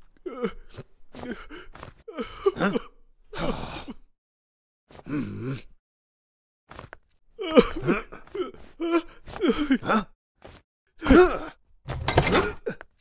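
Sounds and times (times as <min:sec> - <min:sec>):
old man sobbing gasps and groans: 0:00.0 - 0:04.1, 0:04.9 - 0:05.8, 0:07.4 - 0:10.2, 0:11.0 - 0:11.6.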